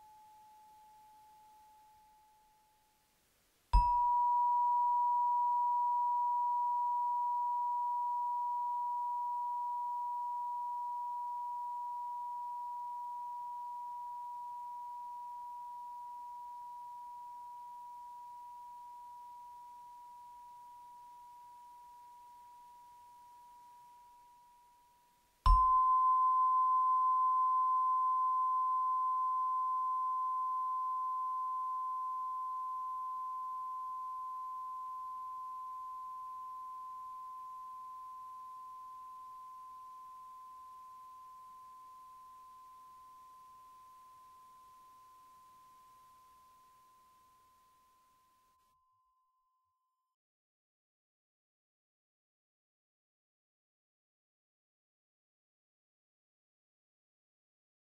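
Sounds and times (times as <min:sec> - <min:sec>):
metal chime ringing: 0:03.8 - 0:09.2.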